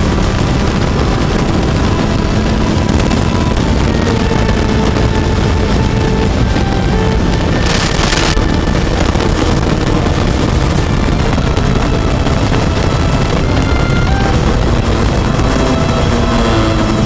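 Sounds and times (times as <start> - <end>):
kart engine running: 0.0 - 17.0
wind rumble on microphone: 0.0 - 17.0.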